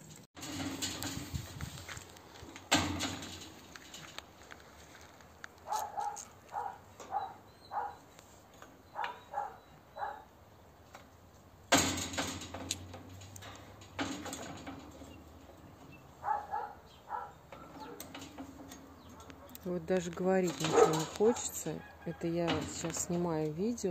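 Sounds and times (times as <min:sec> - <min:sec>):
loud clatter: 0:00.4 - 0:04.4, 0:11.7 - 0:16.0.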